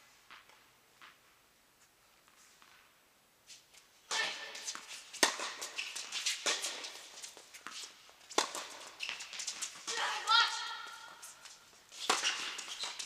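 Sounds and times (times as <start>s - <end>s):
footsteps and shoe scuffs on court: 0.0s - 9.9s
racket hitting tennis ball: 4.1s - 13.0s.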